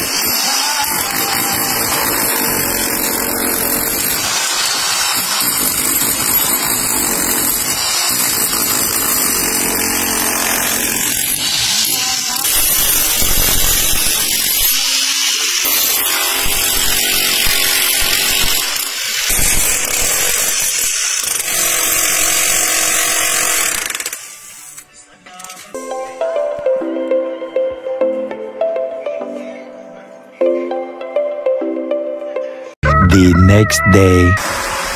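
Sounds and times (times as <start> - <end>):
power tool chipping concrete: 0.0 - 24.3.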